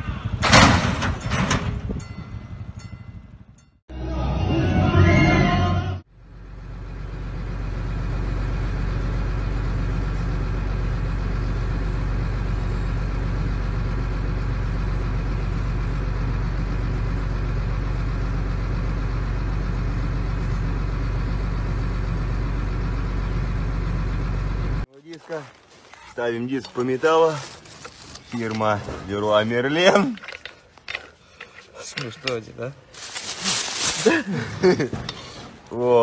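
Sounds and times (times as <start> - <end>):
vehicle engine idling: 6.1 - 25.5.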